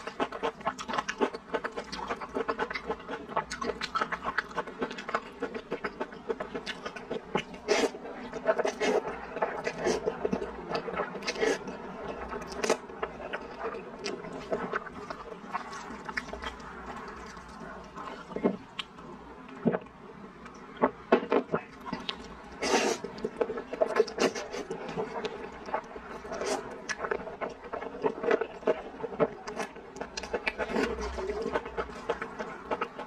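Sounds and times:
noodles slurped and chewed: 21.7s - 33.0s.

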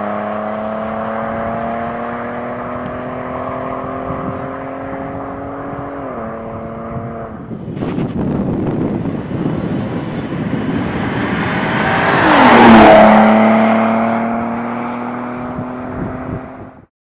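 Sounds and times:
car driving past: 9.0s - 16.7s.

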